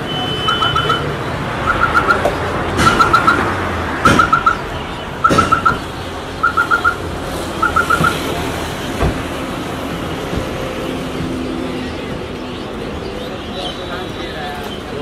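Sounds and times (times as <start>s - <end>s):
high electronic beeps: 0.0s - 3.5s, 4.1s - 4.6s, 5.2s - 5.8s, 6.4s - 7.0s, 7.6s - 8.2s
street traffic noise: 0.0s - 15.0s.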